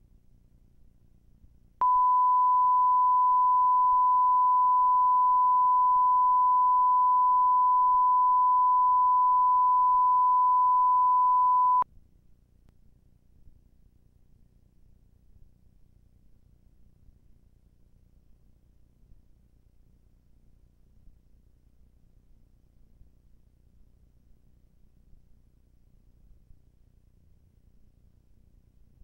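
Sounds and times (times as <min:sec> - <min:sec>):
pure test tone: 0:01.8 - 0:11.8.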